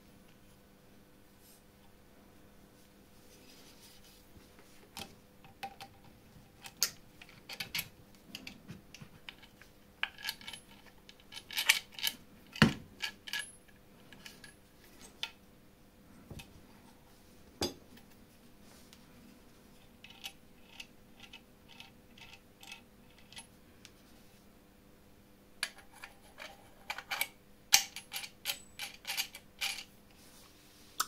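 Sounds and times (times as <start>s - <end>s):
small metal parts clinking: 26.9s - 29.9s.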